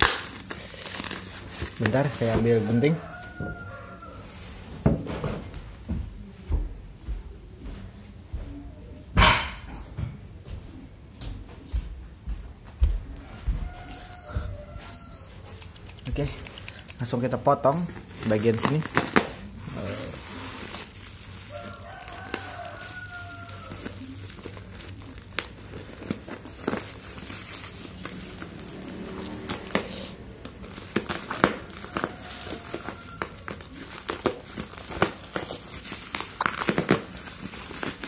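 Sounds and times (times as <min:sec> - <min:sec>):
bubble wrap crinkling: 0:00.0 - 0:04.6, 0:13.6 - 0:38.0
scissors cutting: 0:15.5 - 0:17.0.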